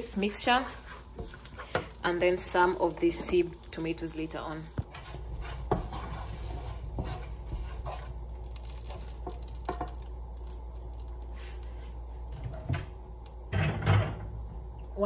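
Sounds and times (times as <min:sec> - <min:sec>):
stirring in a container: 0:04.8 - 0:09.8.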